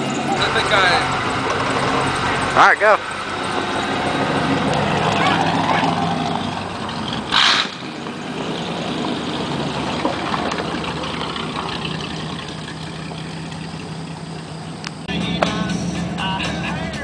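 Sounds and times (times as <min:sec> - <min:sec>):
truck engine running: 0:00.0 - 0:17.0.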